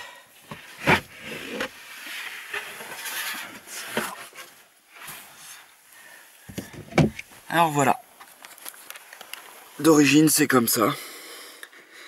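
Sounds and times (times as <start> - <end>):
wooden board scraping and rubbing: 0.5 - 5.3.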